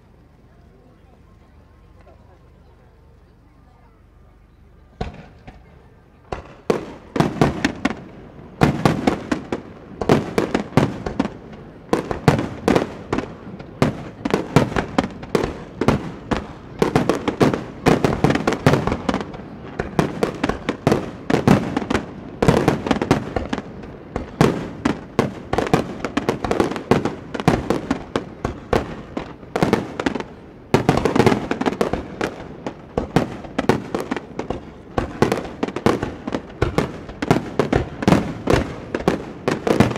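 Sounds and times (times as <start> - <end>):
fireworks booms and cracks: 4.9 - 39.9.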